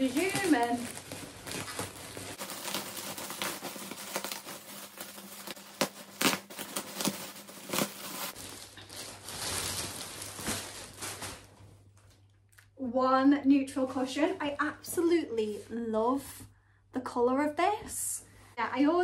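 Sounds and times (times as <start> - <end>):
scissors cutting plastic: 0.0 - 8.4
plastic bag crinkling: 0.0 - 12.2.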